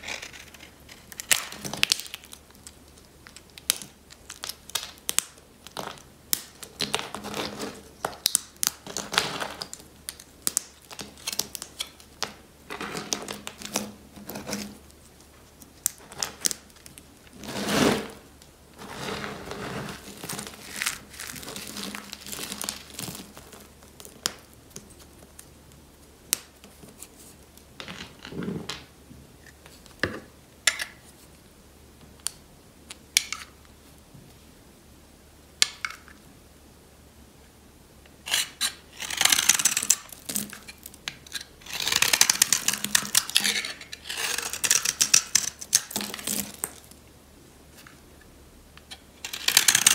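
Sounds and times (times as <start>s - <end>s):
soap flakes crunching by hand: 39.0s - 46.9s.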